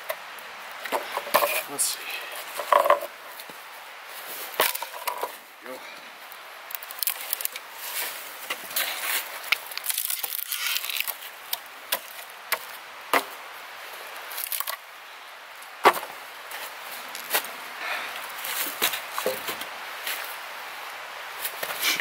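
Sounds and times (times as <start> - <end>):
rustling and crunching: 0.8 - 5.5, 6.2 - 14.9, 15.5 - 20.5
axe chopping firewood: 11.9 - 13.4, 15.8 - 16.2.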